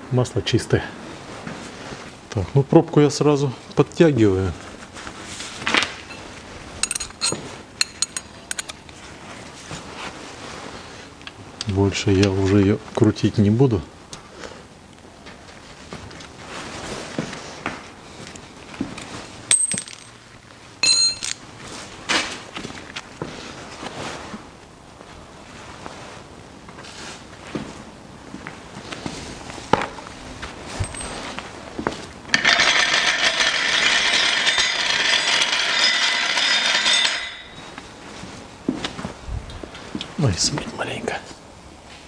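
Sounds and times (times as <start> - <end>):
ringing metal clang: 20.8 - 21.4, 35.6 - 37.7.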